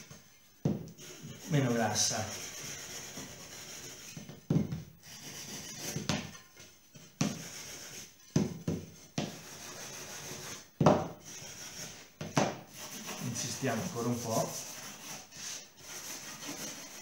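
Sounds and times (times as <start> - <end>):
scouring pad scrubbing wood: 12.8 - 17.0.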